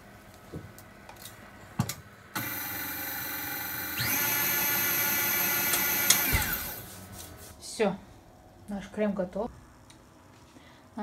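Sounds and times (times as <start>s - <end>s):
stand mixer motor whining: 2.4s - 6.8s.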